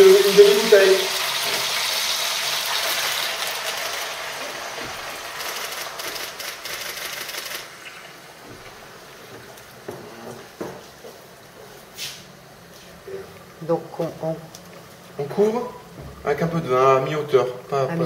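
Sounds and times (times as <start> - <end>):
wine splashing into hot pot: 1.1 - 6.6
soft knocks: 8.4 - 11.2.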